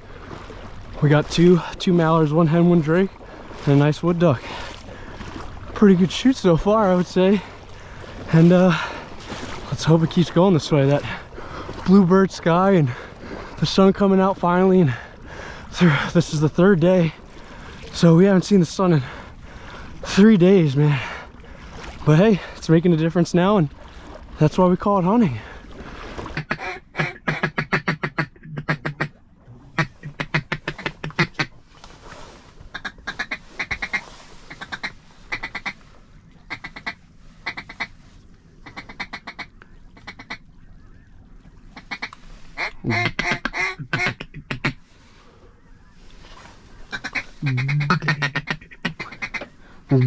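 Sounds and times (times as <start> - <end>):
ducks quacking: 26.2 - 31.6, 32.7 - 35.8, 36.5 - 38.0, 38.6 - 40.5, 41.7 - 44.9, 46.8 - 50.0.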